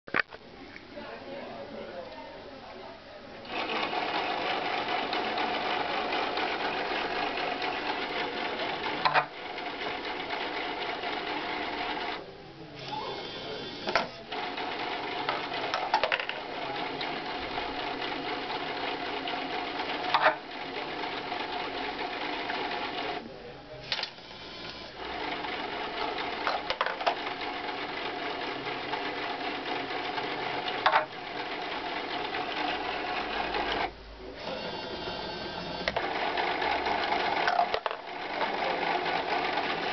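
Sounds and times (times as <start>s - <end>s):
small electric motor whirring: 32.5s - 36.2s.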